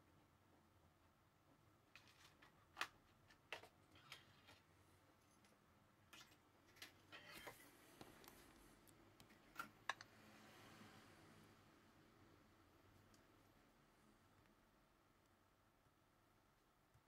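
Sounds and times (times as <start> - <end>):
faint clicks and taps: 1.4 - 10.2.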